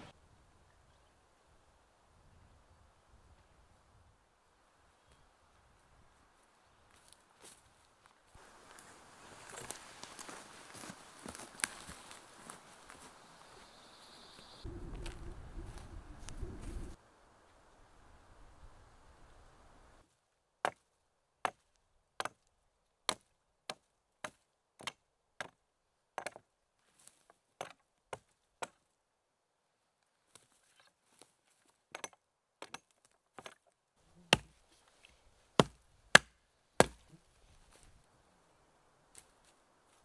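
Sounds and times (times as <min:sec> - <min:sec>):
hatchet chopping log: 0:22.2 - 0:22.5, 0:23.1 - 0:25.6, 0:26.2 - 0:26.4, 0:31.9 - 0:33.6, 0:34.3 - 0:34.6, 0:35.6 - 0:37.1.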